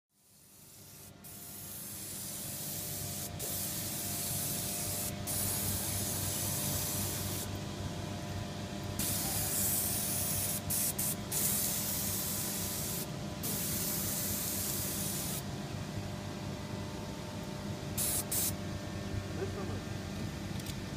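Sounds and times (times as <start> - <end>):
paint spray gun hissing: 0.3 - 7.5, 9.0 - 15.4, 18.0 - 18.6
steady low hum: 0.3 - 20.9.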